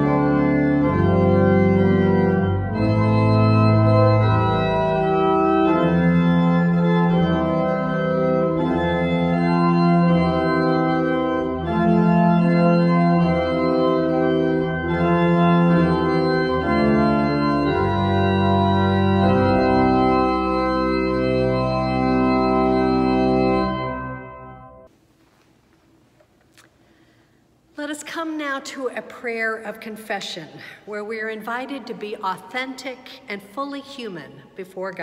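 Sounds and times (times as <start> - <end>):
pipe organ playing slow chords: 0.0 - 24.9.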